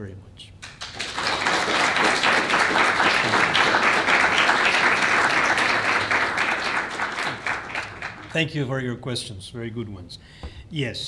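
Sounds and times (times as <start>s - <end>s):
audience applauding: 0.6s - 8.4s.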